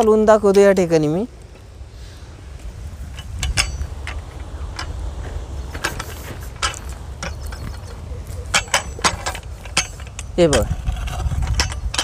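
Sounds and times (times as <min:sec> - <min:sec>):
hoe scraping through dry soil: 0:01.6 - 0:12.0
metallic clink: 0:03.1 - 0:05.0, 0:05.8 - 0:12.0.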